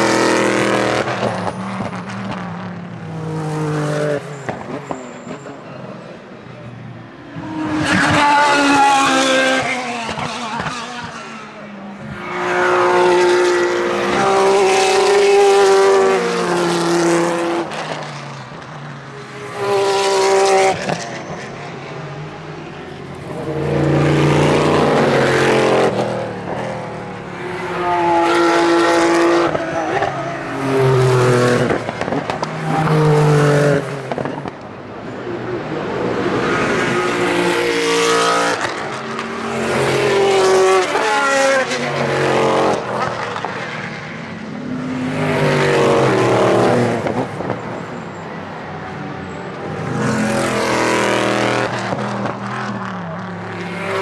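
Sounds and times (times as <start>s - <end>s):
racing cars passing: 0.0s - 54.0s.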